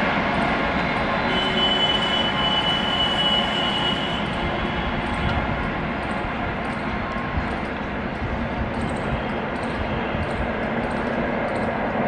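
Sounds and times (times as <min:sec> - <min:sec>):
train coaches rumbling on rails: 0:00.0 - 0:12.0
high wheel squeal: 0:00.8 - 0:05.2.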